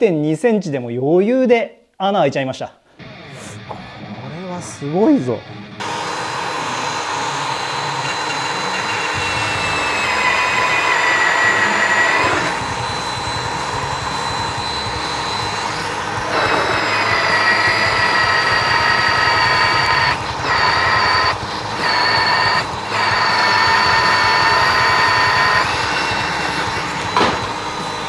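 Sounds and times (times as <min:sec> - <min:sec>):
magnetic drill boring through steel: 0:05.8 - 0:28.0.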